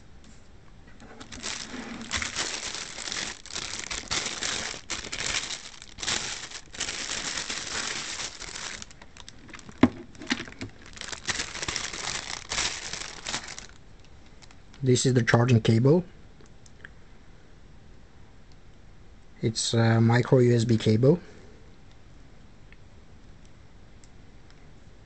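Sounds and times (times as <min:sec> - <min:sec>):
plastic bags crinkling: 0:01.0 - 0:14.8.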